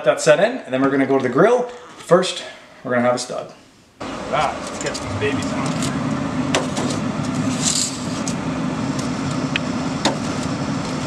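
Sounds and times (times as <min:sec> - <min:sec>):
steady low rumble: 0:04.0 - 0:08.6.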